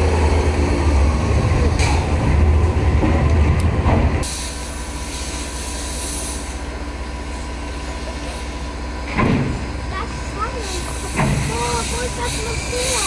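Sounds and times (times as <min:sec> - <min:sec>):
locomotive engine idling: 0:00.0 - 0:13.0.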